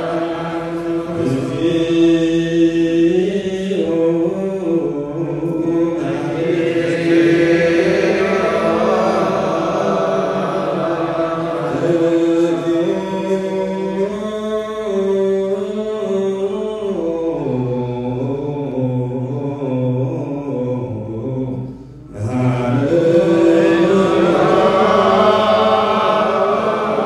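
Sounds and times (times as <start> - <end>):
voices chanting long notes: 0.0 - 15.8, 16.5 - 27.0.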